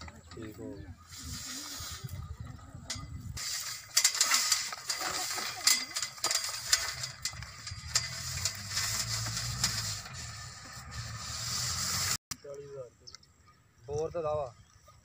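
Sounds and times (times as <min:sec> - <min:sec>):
rope knotted around metal pipe: 0:02.9 - 0:12.2.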